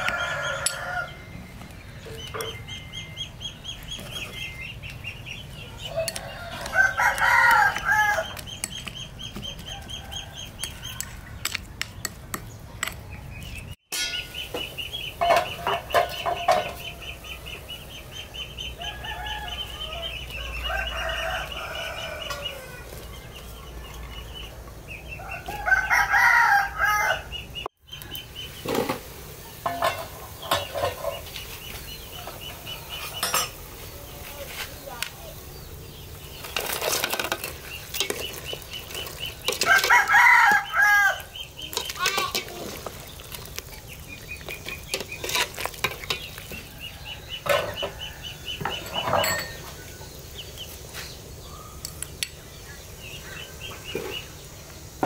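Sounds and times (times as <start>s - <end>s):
roosters crowing: 0.0s - 2.6s, 5.5s - 8.6s, 9.3s - 11.8s, 15.1s - 27.6s, 36.3s - 43.2s, 45.0s - 50.4s.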